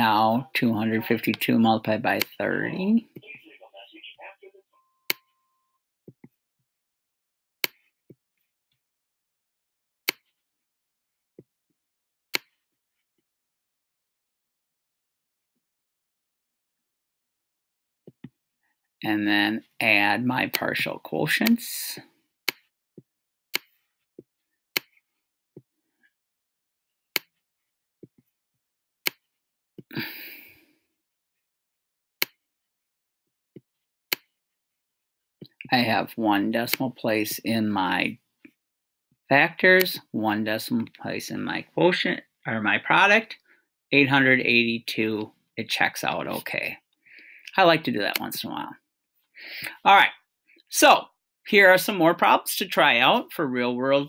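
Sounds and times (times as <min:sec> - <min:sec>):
stylus tapping on tablet: 0:18.1 - 0:18.4.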